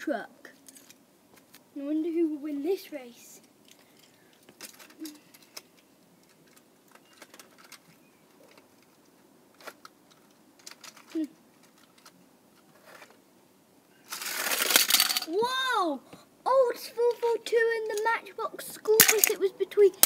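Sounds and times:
toy cars clicking on plastic track: 4.0s - 7.9s, 9.6s - 12.2s, 14.1s - 15.3s, 17.1s - 18.1s, 18.9s - 20.0s.

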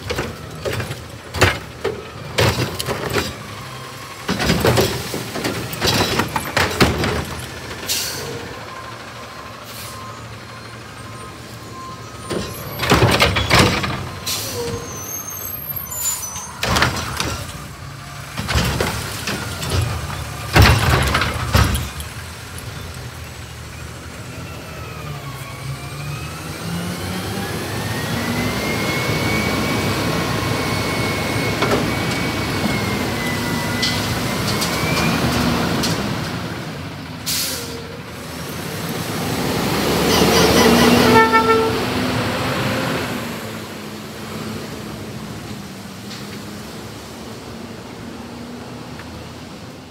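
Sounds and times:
garbage truck engine whine: 0.0s - 49.9s
air brake hiss: 7.9s - 8.4s, 9.7s - 10.1s, 14.3s - 14.7s, 37.3s - 37.8s.

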